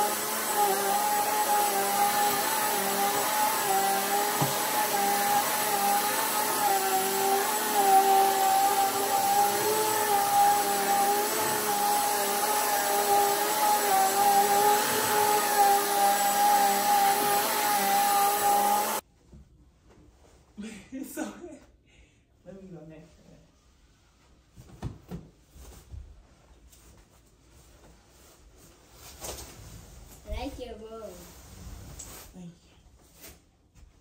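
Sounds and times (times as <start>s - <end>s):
vacuum cleaner running: 0.0s - 19.0s.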